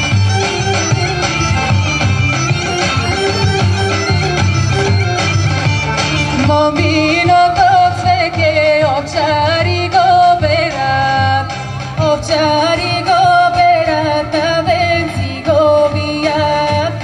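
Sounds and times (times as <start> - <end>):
amplified instrumental accompaniment: 0.0 - 17.0
woman singing through microphone: 6.4 - 17.0.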